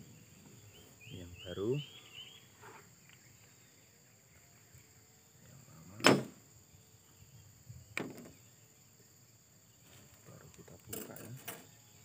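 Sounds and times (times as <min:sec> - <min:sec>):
engine parts knocked on wood: 0:08.0 - 0:08.4.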